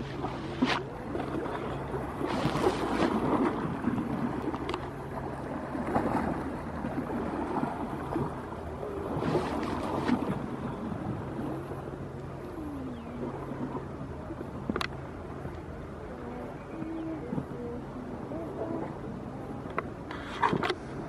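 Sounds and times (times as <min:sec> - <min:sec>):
waves lapping against rocks: 0:00.0 - 0:15.0.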